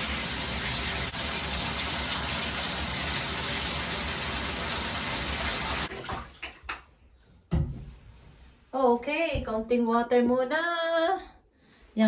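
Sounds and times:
water pouring into bathtub: 0.0s - 6.9s.

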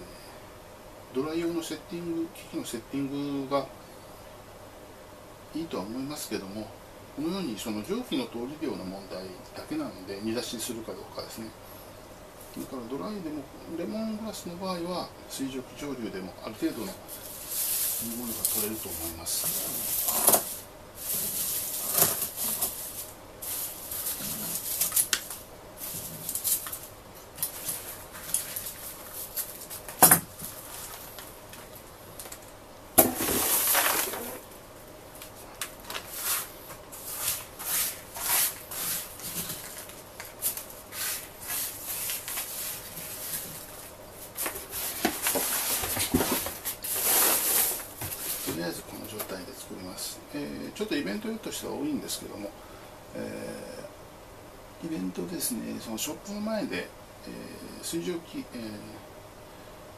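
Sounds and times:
dry grass rustling: 17.2s - 29.9s.

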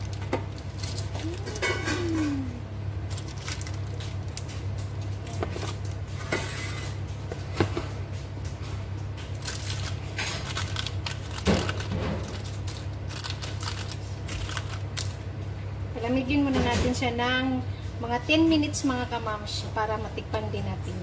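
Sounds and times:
parchment paper crinkling: 0.0s - 1.9s, 3.1s - 6.0s, 9.3s - 15.2s
steady low hum: 0.0s - 21.0s.

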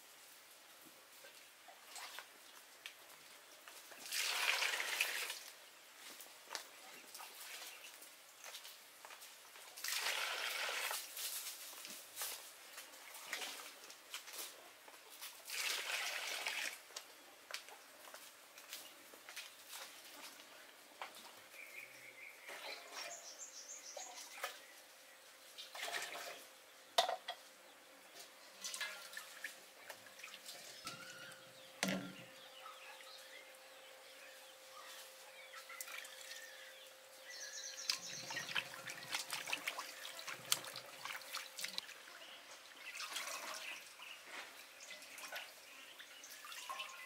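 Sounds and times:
water dripping and trickling: 1.2s - 5.6s, 25.6s - 26.5s, 28.5s - 32.1s, 35.6s - 36.5s, 37.7s - 47.0s
water splashing in a metal bowl: 3.9s - 5.5s, 9.8s - 11.0s, 15.4s - 16.8s, 25.6s - 26.5s, 28.6s - 31.2s, 37.9s - 44.1s, 44.8s - 47.0s.

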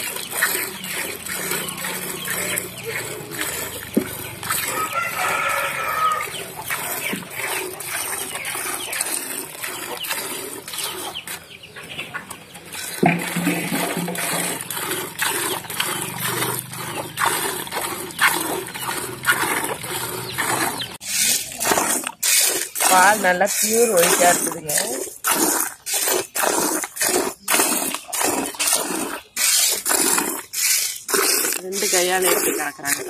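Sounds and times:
milk squirting into a pail: 0.0s - 11.4s, 12.8s - 33.0s.

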